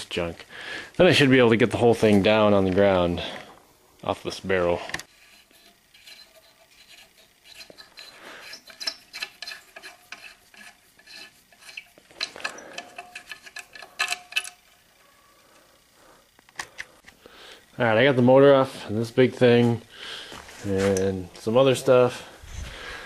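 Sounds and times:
small metal parts clinking: 0:05.6 - 0:15.0.

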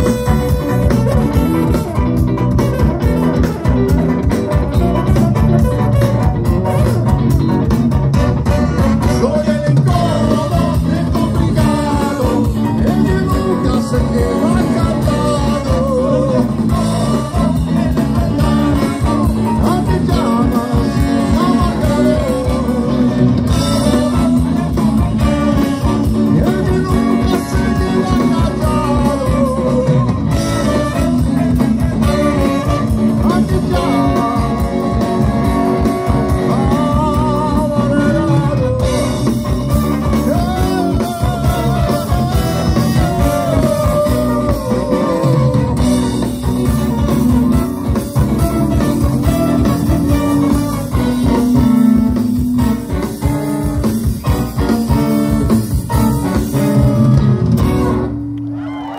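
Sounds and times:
drums: 0:00.0 - 0:58.9
electric guitars: 0:00.0 - 0:58.9
horn section: 0:00.0 - 0:58.9
keyboard: 0:00.0 - 0:58.9
person singing: 0:09.0 - 0:53.0.

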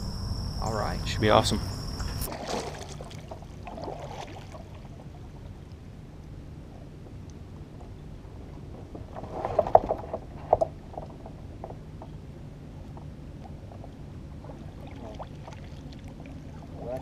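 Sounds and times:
paddle splashing in water: 0:02.2 - 0:05.2, 0:14.4 - 0:17.0.

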